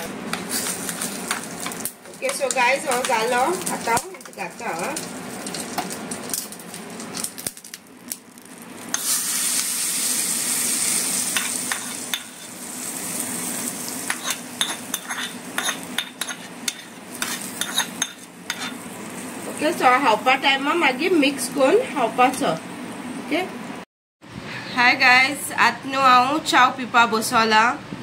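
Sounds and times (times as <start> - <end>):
hot oil sizzling: 0.0 - 23.8
spoon scraping metal pan: 11.4 - 12.5, 14.1 - 18.8.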